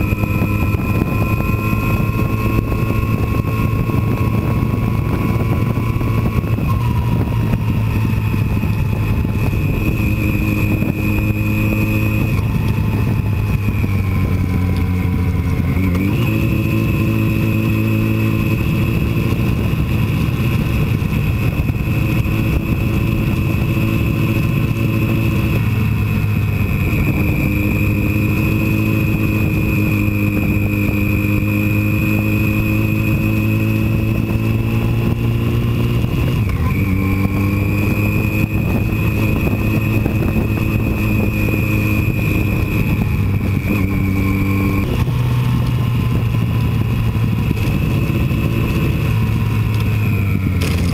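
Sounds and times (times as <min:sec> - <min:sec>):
motorcycle engine running: 0:00.0 - 0:50.9
wind noise: 0:00.0 - 0:50.9.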